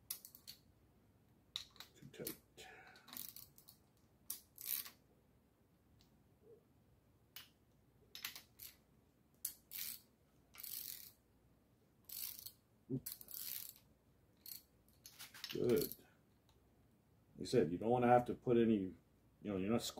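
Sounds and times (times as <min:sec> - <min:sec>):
ratchet wrench clicking: 0:03.0 - 0:03.7, 0:04.3 - 0:05.0, 0:09.5 - 0:10.0, 0:10.6 - 0:11.1, 0:12.1 - 0:13.8.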